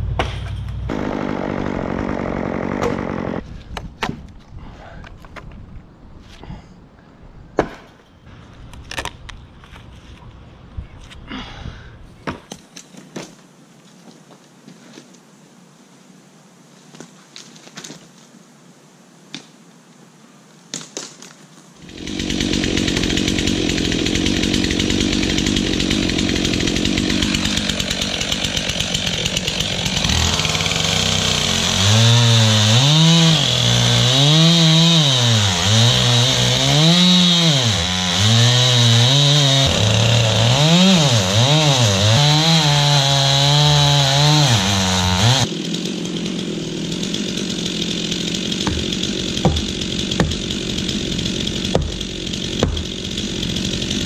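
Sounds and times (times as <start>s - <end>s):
chainsaw cutting wood: 0.2s - 3.4s, 21.8s - 54.0s
sharp knocks: 48.6s - 50.5s, 51.7s - 53.0s.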